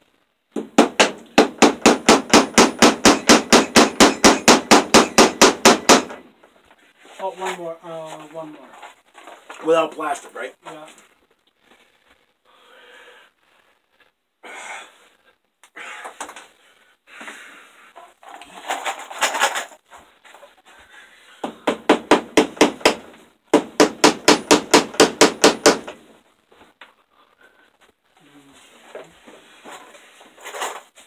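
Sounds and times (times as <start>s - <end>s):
hammer tapping staples into wood: 0.6s - 6.2s, 21.4s - 26.0s
rustling: 6.4s - 12.5s, 15.2s - 21.3s, 26.0s - 31.0s.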